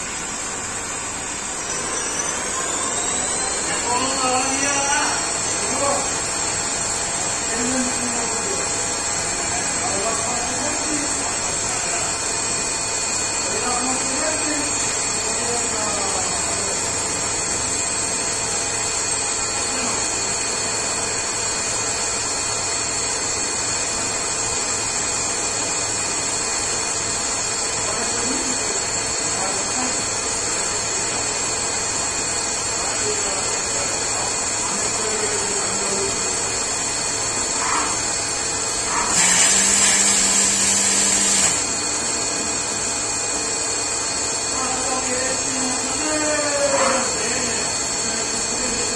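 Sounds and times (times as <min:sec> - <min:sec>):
lathe droning with high whine: 0:00.0 - 0:48.9
loud hiss with low hum: 0:38.8 - 0:42.0.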